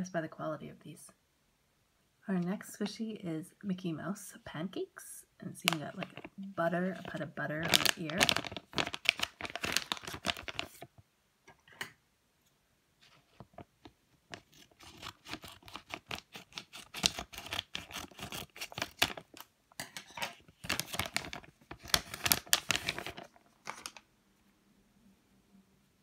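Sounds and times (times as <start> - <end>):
plastic packet crackling: 5.5 - 10.9, 13.3 - 19.5, 20.3 - 24.1.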